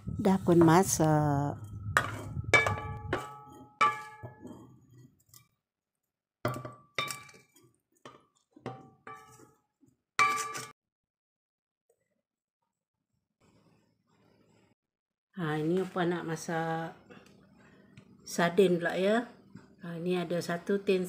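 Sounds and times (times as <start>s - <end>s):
spatula clinking in metal wok: 2.0s - 4.4s, 6.6s - 9.4s, 10.2s - 10.7s.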